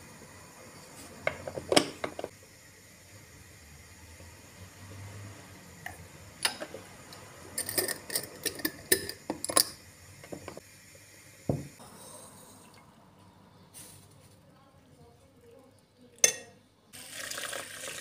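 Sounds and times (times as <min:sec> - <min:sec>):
dull thump: 0:11.5 - 0:11.8.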